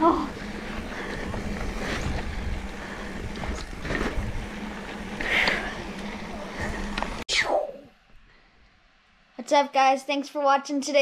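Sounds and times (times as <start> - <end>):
bike knocks and rattles: 0.0 - 7.2
wind rumble: 0.0 - 7.2.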